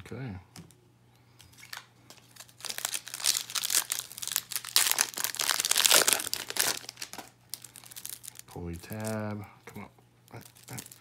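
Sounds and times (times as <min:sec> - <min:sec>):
foil wrapper crinkling: 0:01.4 - 0:09.2, 0:10.3 - 0:11.0.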